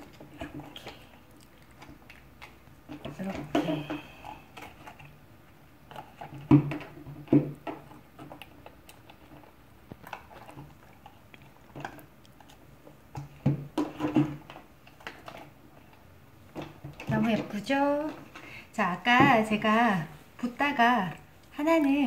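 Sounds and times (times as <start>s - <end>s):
silicone mold rubbing and squishing: 0.0s - 22.0s.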